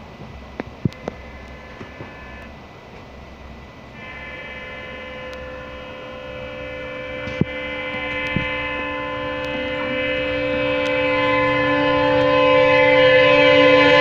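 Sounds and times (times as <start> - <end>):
train rumbling at speed: 0.0 - 14.0
locomotive horn chord: 4.0 - 14.0.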